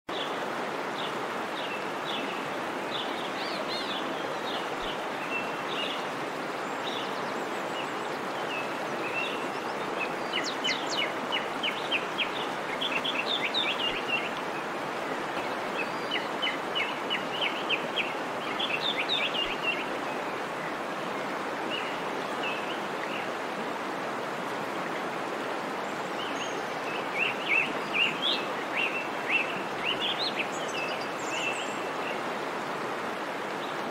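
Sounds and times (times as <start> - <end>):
small birds chirping: 0.1 - 20.8.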